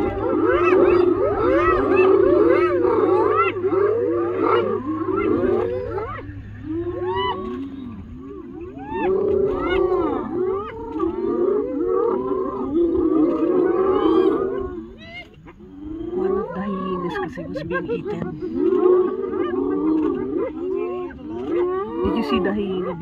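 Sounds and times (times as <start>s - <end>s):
hyenas whooping and squealing: 0.0s - 23.0s.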